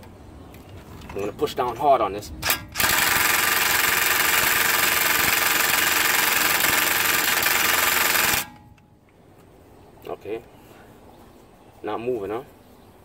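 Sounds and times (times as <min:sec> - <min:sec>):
impact drill rattling: 0:02.4 - 0:08.6.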